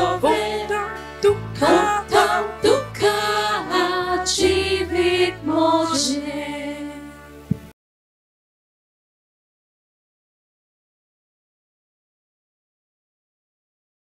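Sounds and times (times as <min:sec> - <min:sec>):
guitar: 0:00.0 - 0:06.4
choir singing a hymn: 0:00.0 - 0:07.7
keyboard: 0:00.0 - 0:07.7.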